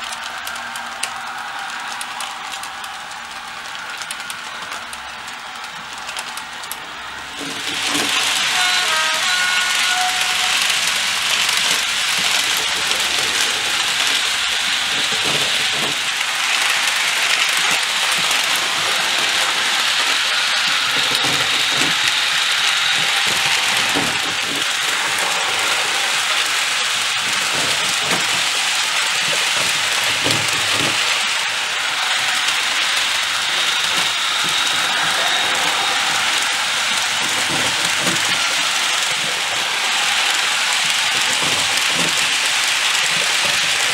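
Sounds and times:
model train running: 0:00.0 - 0:43.9.

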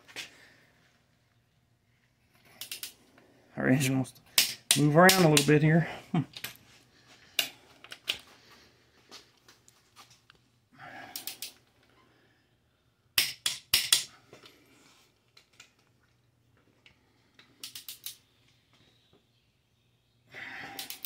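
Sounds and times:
torque wrench clicking: 0:17.6 - 0:18.2.

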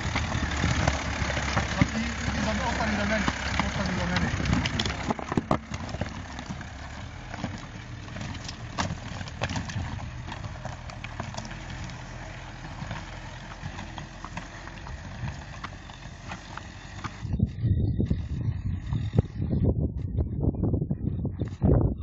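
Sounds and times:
rocks crunching and clacking: 0:00.0 - 0:17.4
diesel engine running low: 0:00.0 - 0:22.0.

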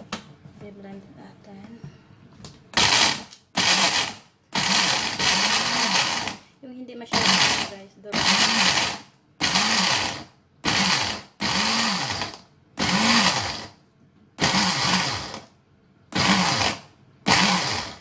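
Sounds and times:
blender pulsing: 0:02.8 - 0:06.4, 0:07.1 - 0:13.8, 0:14.4 - 0:15.5, 0:16.2 - 0:18.0.

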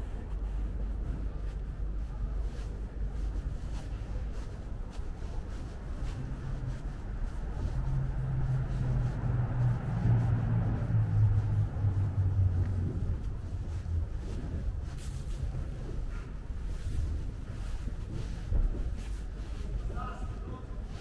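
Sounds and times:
street traffic rumble: 0:00.0 - 0:21.0
vehicle engine passing by: 0:07.6 - 0:14.0.

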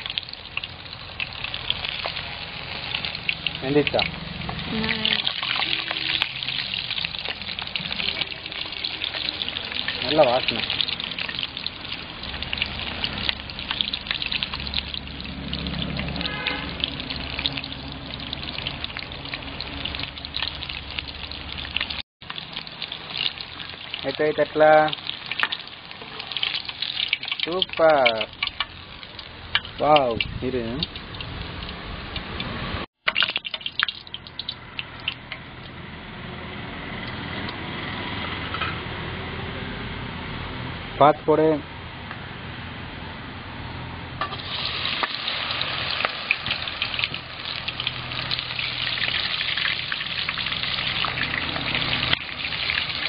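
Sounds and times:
deep-frying sizzle and crackling: 0:00.0 - 0:36.1, 0:44.2 - 0:53.0.

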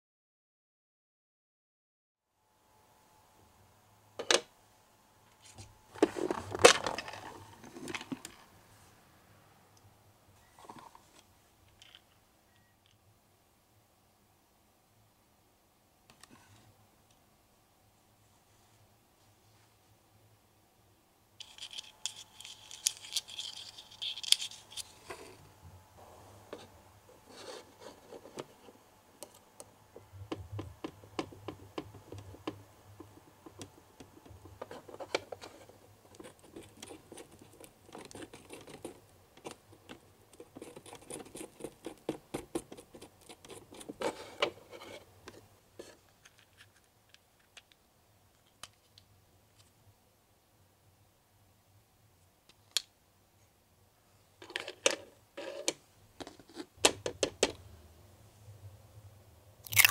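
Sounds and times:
scratchy plastic rustle: 0:21.4 - 0:25.4.

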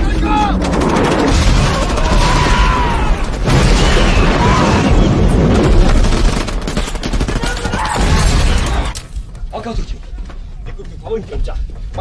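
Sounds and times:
explosions and booms: 0:00.1 - 0:09.0.

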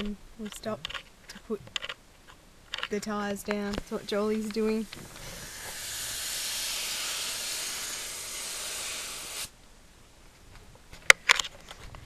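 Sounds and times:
air hissing from tyre valve: 0:04.8 - 0:09.5.

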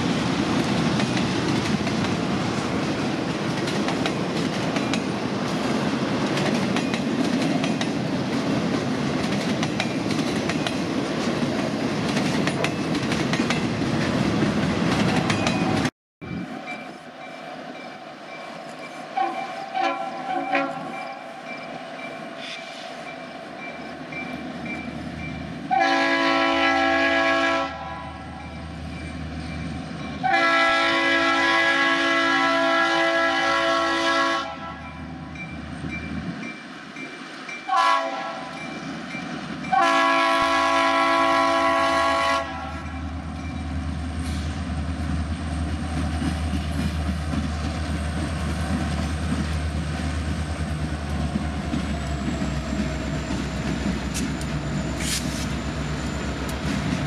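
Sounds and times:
diesel locomotives approaching: 0:00.0 - 0:57.0
train wheels clacking over rail joints: 0:00.5 - 0:15.9, 0:43.4 - 0:57.0
train air horn: 0:19.2 - 0:21.0, 0:25.7 - 0:28.4, 0:30.2 - 0:35.0, 0:37.7 - 0:38.6, 0:39.7 - 0:43.0.

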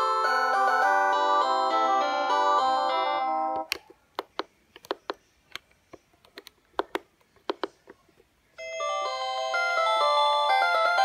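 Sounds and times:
polyphonic phone ringtone: 0:00.0 - 0:03.7, 0:08.6 - 0:11.0.

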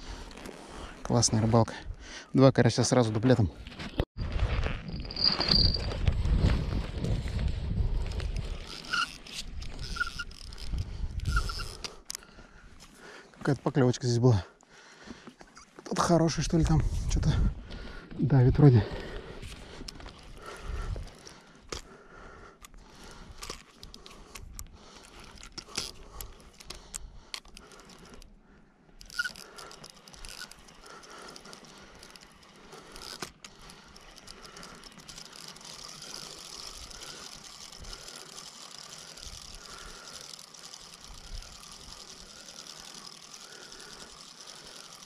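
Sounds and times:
fishing reel whirring: 0:04.9 - 0:06.1, 0:07.8 - 0:12.3, 0:19.8 - 0:21.9, 0:22.6 - 0:28.4, 0:29.0 - 0:45.0.

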